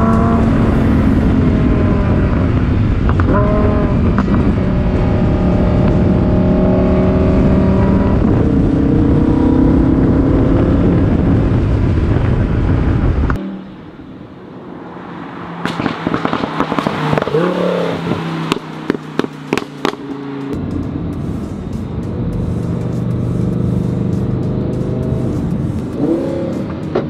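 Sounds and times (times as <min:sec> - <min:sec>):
exhaust pops and crackles: 0:02.6 - 0:05.0, 0:15.6 - 0:27.0
sports car engine from inside cabin: 0:15.7 - 0:27.0.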